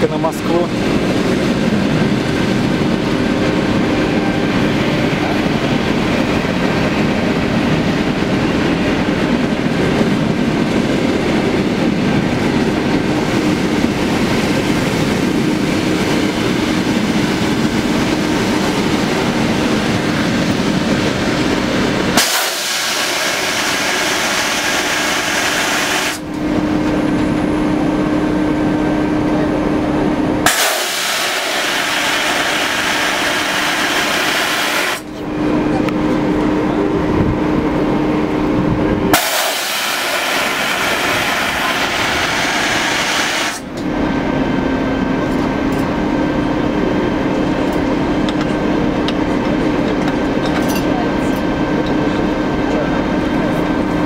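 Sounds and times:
diesel locomotive hum: 0:00.0 - 0:54.0
train wheels rumbling: 0:00.0 - 0:54.0
loud hiss: 0:22.2 - 0:26.2, 0:30.4 - 0:35.1, 0:39.1 - 0:43.7.

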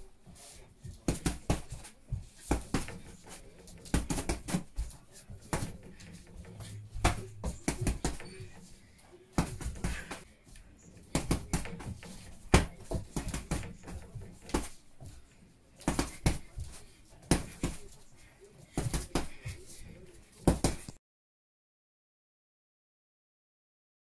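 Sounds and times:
punches thudding on heavy bag: 0:11.2 - 0:14.7.

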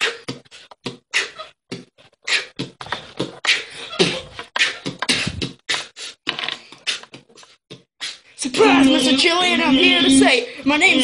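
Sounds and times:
person beatboxing: 0:00.0 - 0:06.2.

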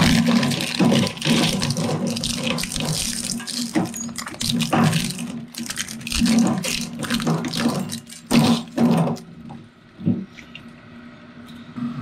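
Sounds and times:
shredder crunching plastic: 0:00.0 - 0:09.3
shredder humming: 0:00.0 - 0:09.3.

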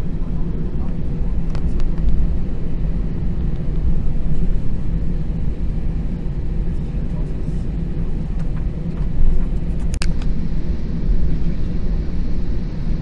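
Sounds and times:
jet engine and airflow rumble: 0:00.0 - 0:13.0.

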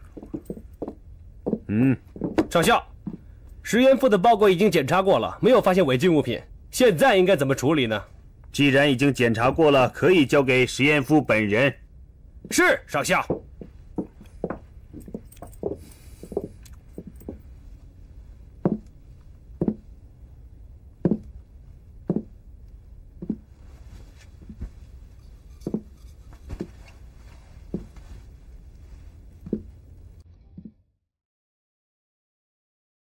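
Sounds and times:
slow footsteps: 0:00.0 - 0:03.6, 0:12.3 - 0:30.8
low steady hum: 0:00.0 - 0:31.0.

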